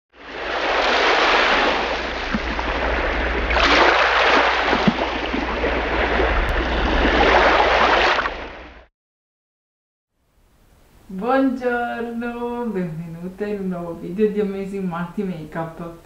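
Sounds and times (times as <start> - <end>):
surf washing over sand: 0.2 - 8.3.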